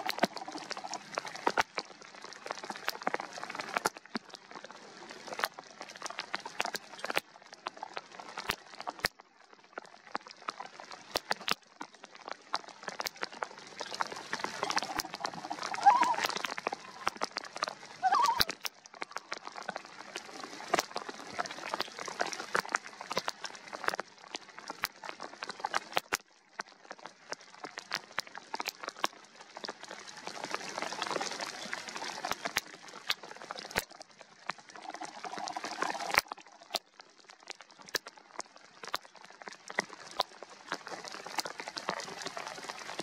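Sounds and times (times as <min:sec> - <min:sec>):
raindrops tapping: 0:00.0 - 0:04.7, 0:05.4 - 0:20.1, 0:20.7 - 0:30.8
rain hissing on water: 0:00.0 - 0:43.0.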